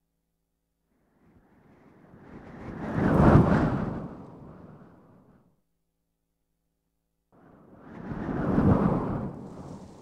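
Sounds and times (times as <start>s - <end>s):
wind noise: 1.1s - 5.4s, 7.4s - 10.0s.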